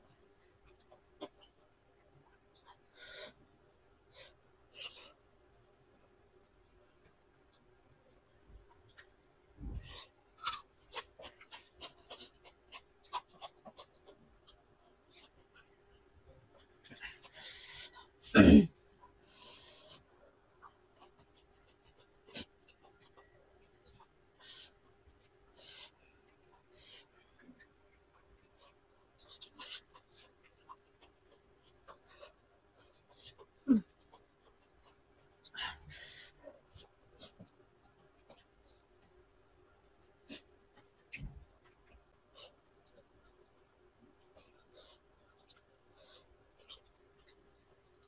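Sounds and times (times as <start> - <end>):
wet chewing and lip-smacking: 36.2 - 48.0.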